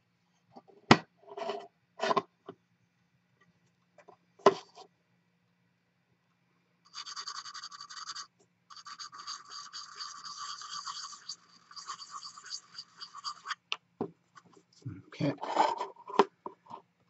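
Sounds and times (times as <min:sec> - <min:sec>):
sanding stick scratching: 0:06.9 - 0:13.6.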